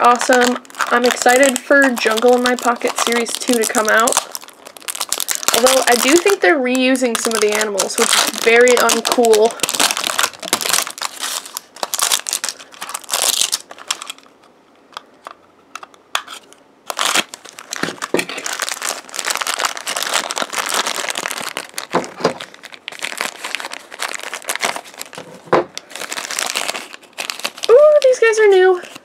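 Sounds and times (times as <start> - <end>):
wrappers crinkling: 0.0 - 14.5, 16.2 - 29.0.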